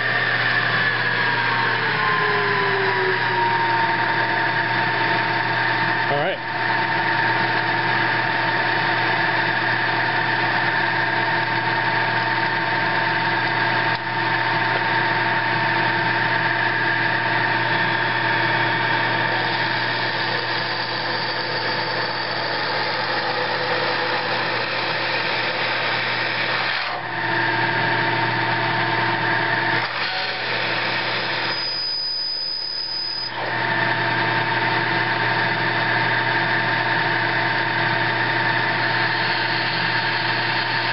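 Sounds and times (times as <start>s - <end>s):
drill cutting metal: 0.0s - 40.9s
milling machine spindle running: 0.0s - 40.9s
high squeal from cut: 20.4s - 22.6s, 31.3s - 33.4s.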